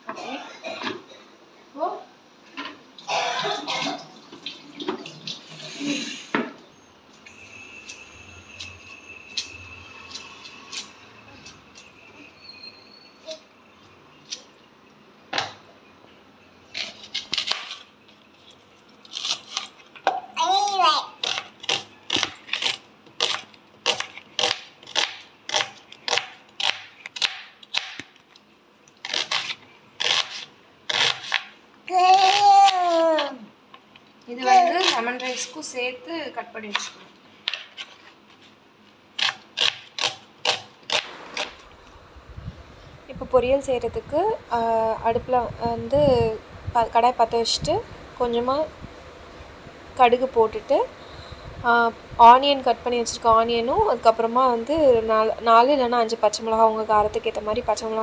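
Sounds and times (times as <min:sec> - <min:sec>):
knife slicing onion on cutting board: 0:29.1 - 0:31.5.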